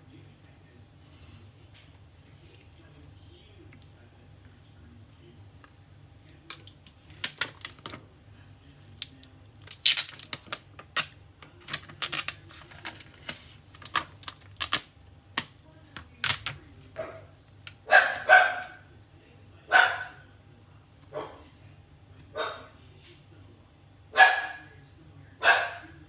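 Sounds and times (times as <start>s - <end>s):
plastic film peeling and crinkling: 6.6s - 8.0s, 8.9s - 11.1s, 11.7s - 14.9s
plastic film rustle: 6.9s - 8.0s, 9.0s - 11.0s, 11.6s - 14.9s.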